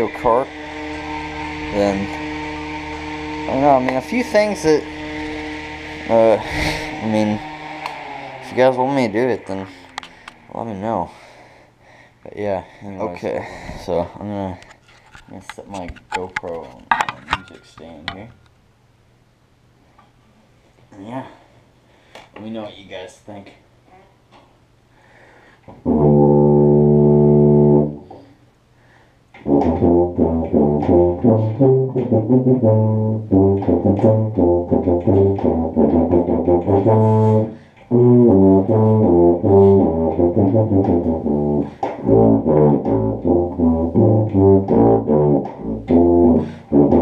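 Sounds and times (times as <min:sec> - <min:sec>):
tuba playing: 0:00.0 - 0:11.3, 0:25.8 - 0:28.3, 0:29.4 - 0:47.0.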